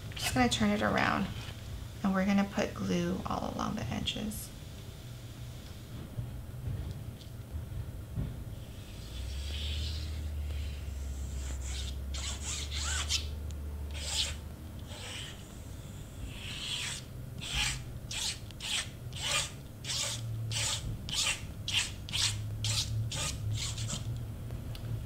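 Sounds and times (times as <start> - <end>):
hand rubbing cardstock: 8.7 - 13.2, 14.0 - 24.0.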